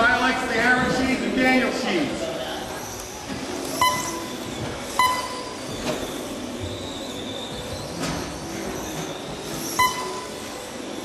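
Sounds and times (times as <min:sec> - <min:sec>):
electric model cars whining: 0:02.4 - 0:11.0
short electronic beeps: 0:03.8 - 0:05.8, 0:09.6 - 0:10.6.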